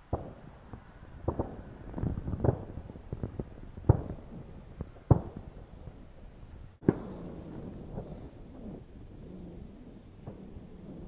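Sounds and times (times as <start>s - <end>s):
wind on microphone: 0.0s - 11.0s
distant shotgun fire: 1.2s - 6.0s, 6.8s - 8.2s.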